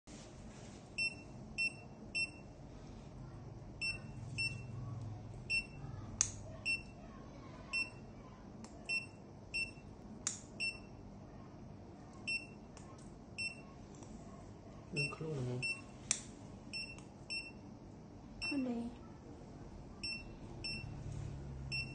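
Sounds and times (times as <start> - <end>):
patient monitor beeping: 1.0 - 2.6, 3.7 - 7.0, 7.7 - 8.2, 8.8 - 10.0, 10.6 - 11.1, 12.2 - 12.8, 13.4 - 13.8, 15.0 - 16.0, 16.7 - 17.7, 18.4 - 18.8, 20.0 - 21.9.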